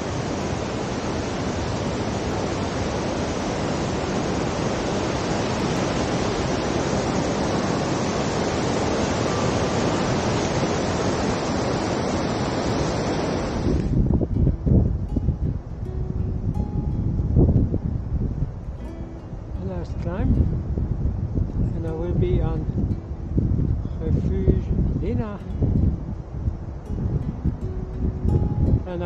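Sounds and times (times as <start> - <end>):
fast-flowing water rushing: 0.0 - 14.9.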